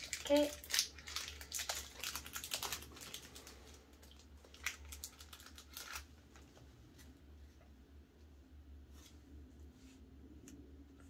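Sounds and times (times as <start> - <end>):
foil wrapper crinkling: 0.0 - 6.6.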